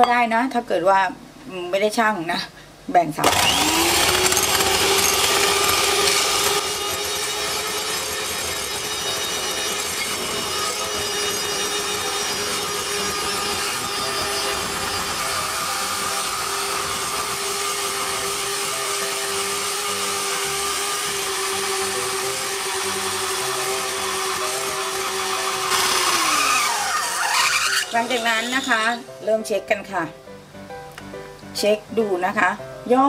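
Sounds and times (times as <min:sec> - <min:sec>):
electric hand mixer whining: 0:03.2 - 0:29.1.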